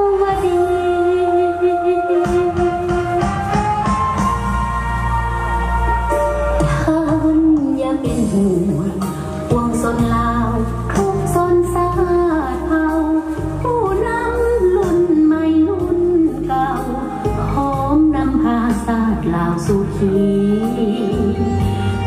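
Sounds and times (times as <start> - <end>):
instrumental accompaniment: 0.0 - 22.0
woman singing into microphone: 0.0 - 22.0.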